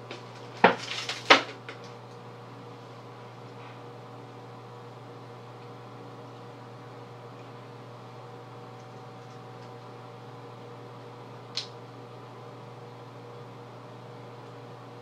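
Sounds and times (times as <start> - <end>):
machine hum and hiss: 0.0 - 15.0.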